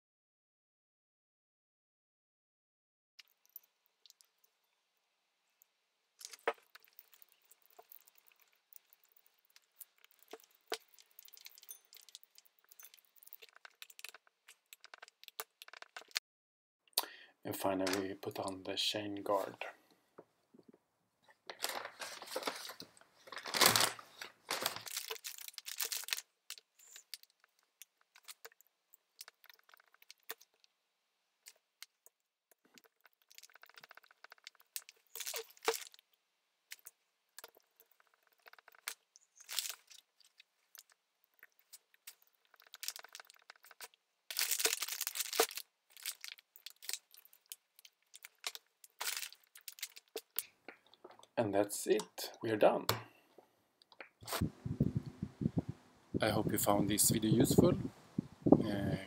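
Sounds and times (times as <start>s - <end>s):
paper crinkling: 6.2s - 16.2s, 21.4s - 28.6s, 32.7s - 36.0s, 36.7s - 50.5s.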